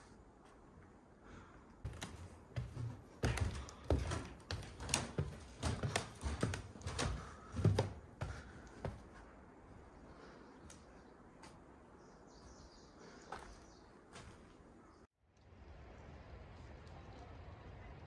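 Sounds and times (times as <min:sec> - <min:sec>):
footsteps on wooden stairs: 0:01.8 - 0:09.8.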